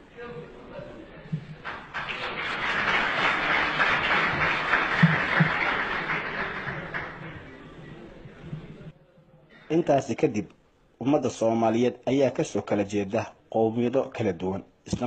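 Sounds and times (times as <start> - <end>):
audience applauding: 1.6 - 7.7.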